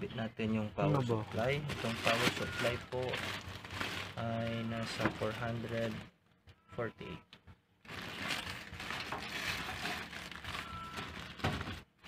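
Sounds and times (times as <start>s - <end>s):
plastic pouch crinkling: 1.7s - 6.1s, 7.8s - 11.9s.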